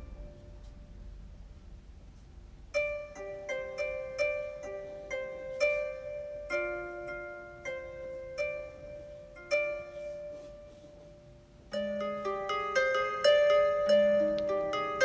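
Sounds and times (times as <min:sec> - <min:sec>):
gentle plucked music: 0:00.0 - 0:15.0.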